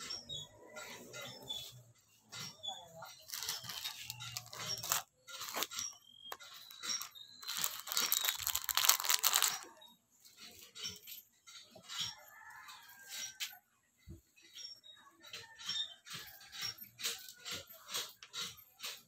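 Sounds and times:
plastic packets crinkling: 0:03.2 - 0:09.8.

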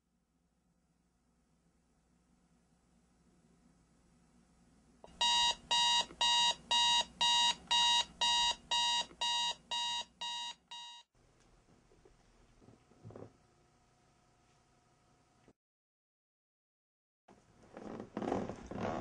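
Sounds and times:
alarm clock beeping: 0:05.1 - 0:11.1.

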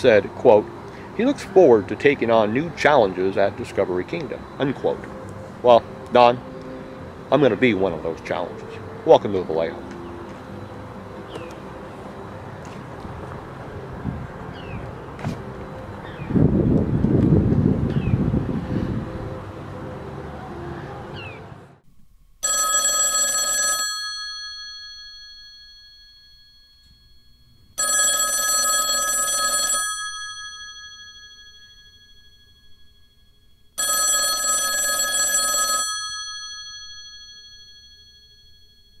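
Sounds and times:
wind noise: 0:13.8 - 0:19.7
old telephone bell ringing: 0:22.4 - 0:39.0.

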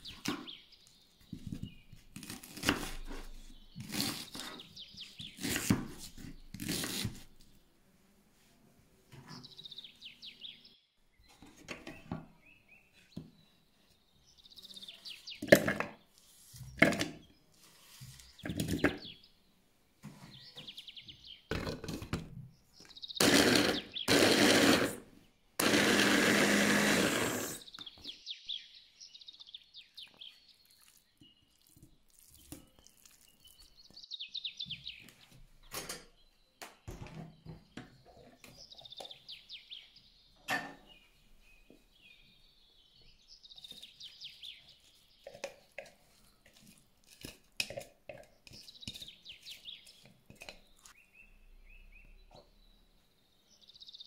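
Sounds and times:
birds chirping: 0:22.5 - 0:24.9, 0:32.4 - 0:46.6, 0:48.1 - 0:54.0.

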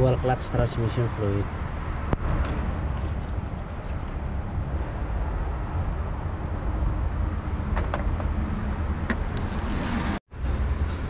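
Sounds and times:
steady low rumble: 0:01.4 - 0:09.7.

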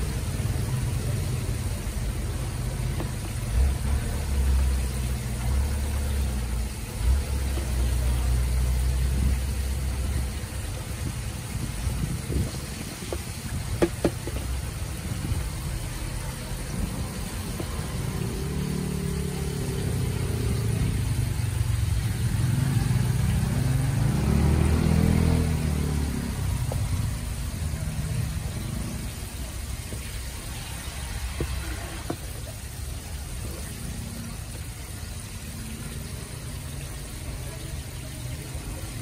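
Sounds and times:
vehicle engine passing by: 0:00.0 - 0:39.0
spoon tapping plastic tub: 0:13.0 - 0:14.6.

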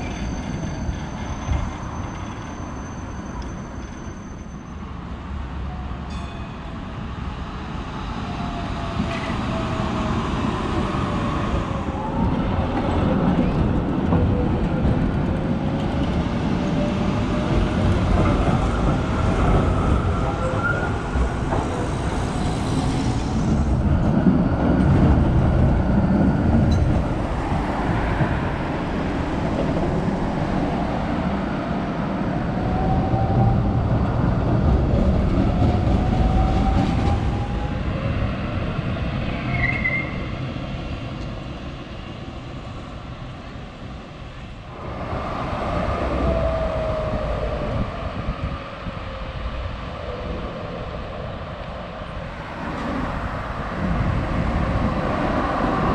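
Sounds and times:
rail wheels rumbling on track: 0:00.0 - 0:55.9.

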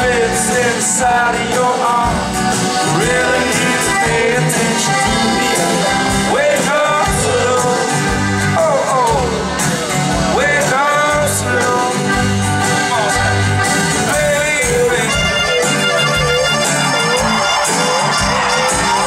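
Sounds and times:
man singing: 0:00.0 - 0:16.2
accordion: 0:00.0 - 0:19.0
acoustic guitar strumming: 0:00.0 - 0:19.0
bass: 0:00.0 - 0:19.0
drums: 0:00.0 - 0:19.0.

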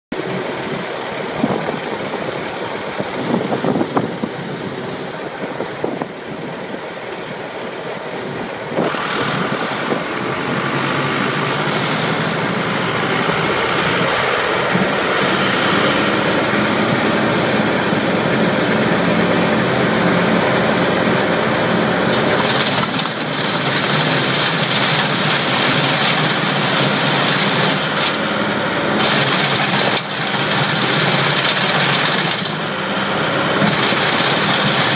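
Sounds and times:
diesel engine running: 0:00.1 - 0:34.9
wood chipper chipping wood: 0:08.8 - 0:34.9
engine clunks: 0:22.0 - 0:28.3, 0:28.9 - 0:32.8, 0:33.5 - 0:34.9.

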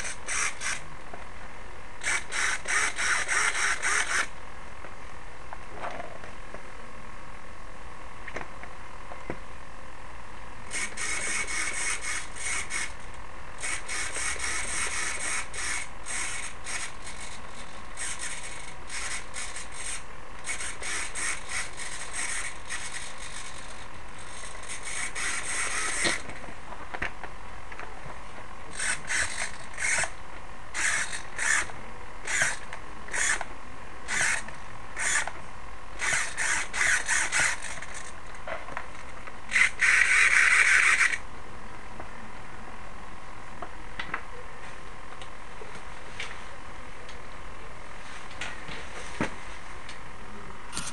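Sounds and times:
small servo buzzing: 0:00.0 - 0:00.8, 0:02.0 - 0:04.3, 0:10.7 - 0:26.3, 0:28.7 - 0:33.5, 0:34.1 - 0:35.4, 0:36.0 - 0:38.2, 0:39.5 - 0:41.2.

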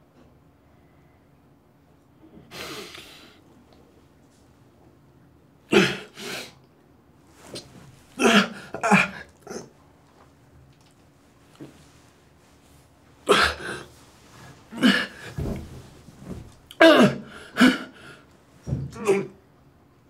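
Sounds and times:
man coughing: 0:05.7 - 0:06.2, 0:08.2 - 0:09.7, 0:13.2 - 0:13.9, 0:14.7 - 0:15.4, 0:16.8 - 0:18.0
man grunting: 0:05.7 - 0:06.2, 0:08.2 - 0:09.7, 0:13.2 - 0:13.9, 0:14.7 - 0:15.4, 0:16.7 - 0:18.0, 0:18.9 - 0:19.4.

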